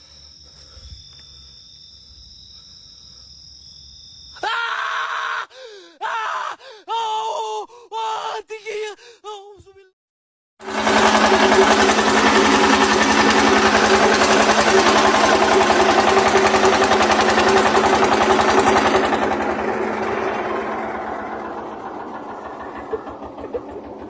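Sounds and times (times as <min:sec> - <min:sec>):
boat engine running: 0:10.6 - 0:24.0.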